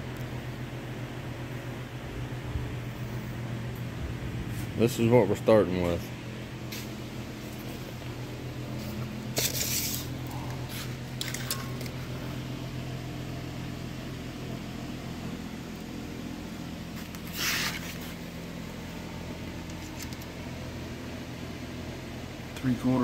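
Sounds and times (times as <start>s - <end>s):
shop machinery hum: 0.0s - 23.0s
hissing scrapes: 17.0s - 18.2s.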